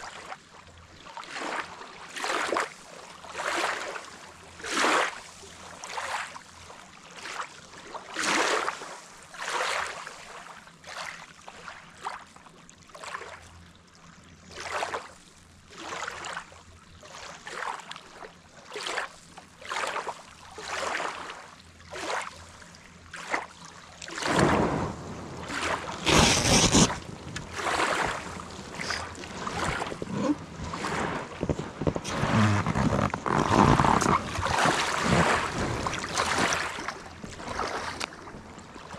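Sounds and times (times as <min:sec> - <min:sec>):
paddling and splashing water: 0:21.9 - 0:38.9
waves lapping on gravel shore: 0:24.1 - 0:38.2.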